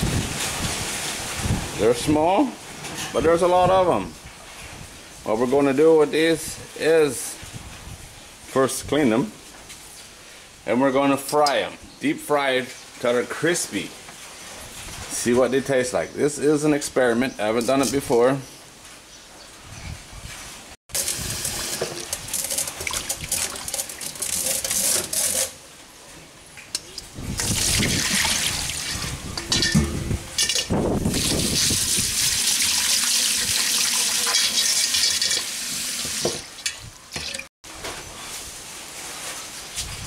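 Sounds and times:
metal knocks: 0:29.4 - 0:30.7
tap water splashing into sink: 0:32.2 - 0:37.4.

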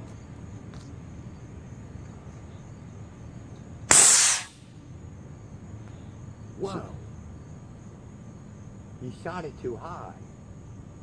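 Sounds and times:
air cannon blast hissing: 0:03.9 - 0:04.6.

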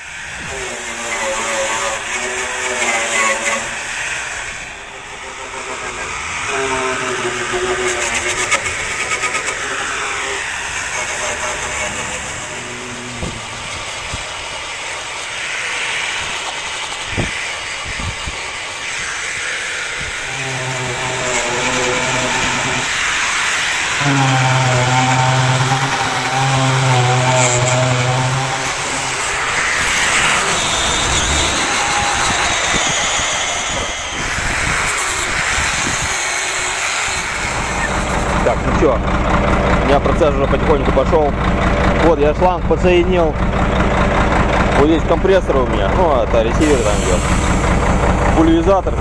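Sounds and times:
steady low hum: 0:00.0 - 0:34.5
angle grinder grinding metal: 0:00.0 - 0:42.1, 0:42.9 - 0:49.0.

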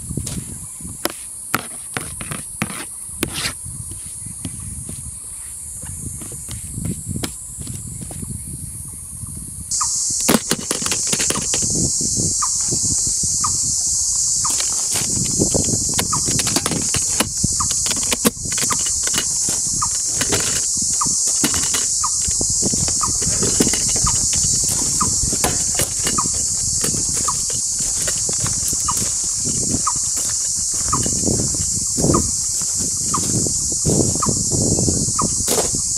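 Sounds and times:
high-pitched insect chorus: 0:00.0 - 0:35.9
knocks and clicks: 0:09.7 - 0:11.8, 0:14.4 - 0:33.4.

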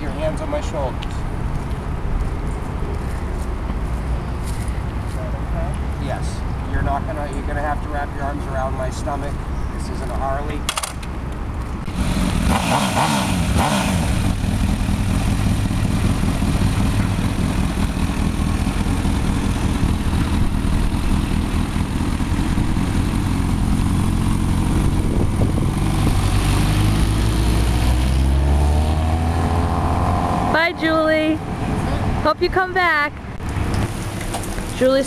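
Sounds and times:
motorcycle engine revving: 0:11.9 - 0:31.2.

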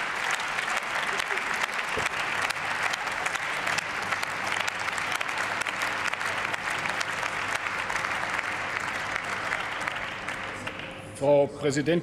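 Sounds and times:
crowd applause: 0:00.0 - 0:11.1.

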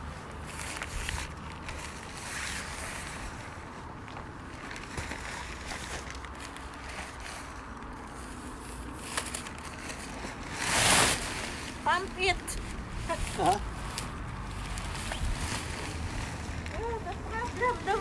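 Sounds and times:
nylon fabric rustling: 0:00.0 - 0:18.0
wind buffeting microphone: 0:12.4 - 0:18.0.

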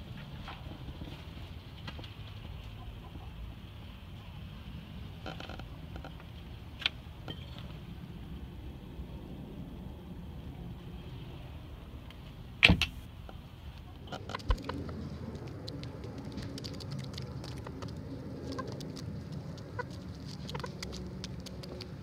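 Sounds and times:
hens pecking and scratching: 0:13.2 - 0:22.0
hens clucking: 0:16.7 - 0:21.9.

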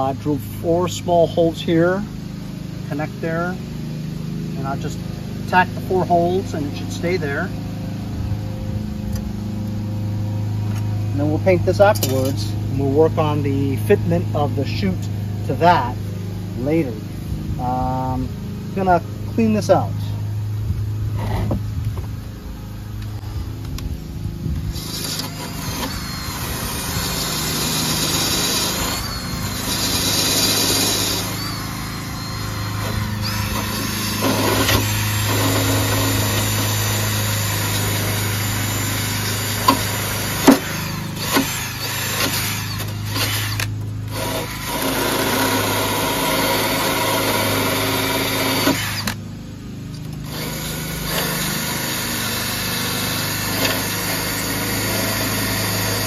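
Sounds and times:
drill with wire brush scrubbing: 0:11.2 - 0:16.0, 0:24.6 - 0:49.2, 0:50.0 - 0:56.0.

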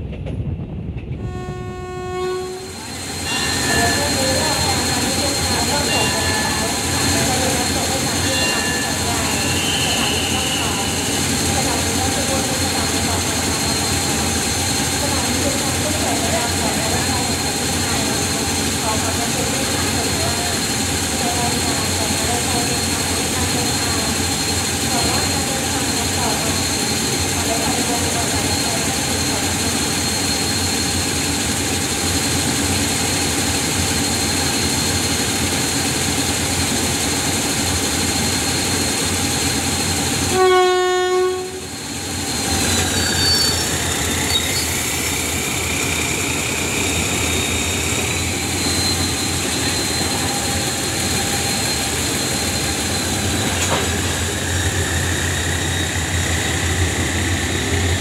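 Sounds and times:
diesel locomotive engine drone: 0:00.0 - 0:58.0
locomotive horn blast: 0:01.2 - 0:02.8, 0:08.3 - 0:11.1, 0:40.3 - 0:41.7.

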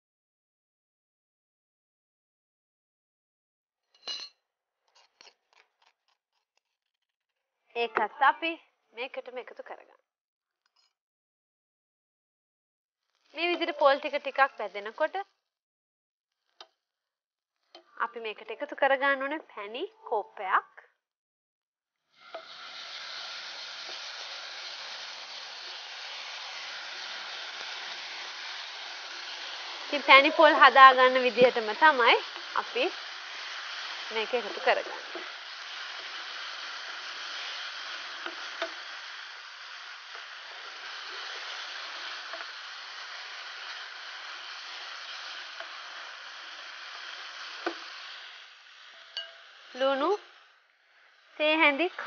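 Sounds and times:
hot pan sizzling: 0:13.0 - 0:15.4, 0:22.1 - 0:52.0
spatula scraping and tapping pan: 0:38.2 - 0:39.0, 0:47.5 - 0:48.1, 0:48.8 - 0:50.3.

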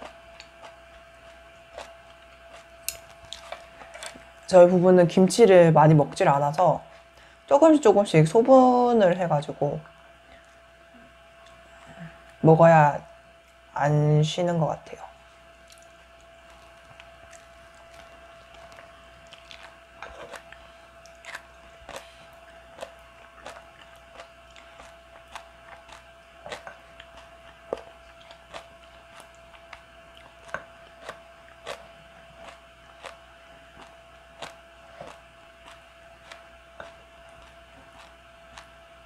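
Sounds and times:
chewing and mouth sounds: 0:00.0 - 0:04.2, 0:15.6 - 0:38.8
faint steady hum: 0:00.0 - 0:39.0.

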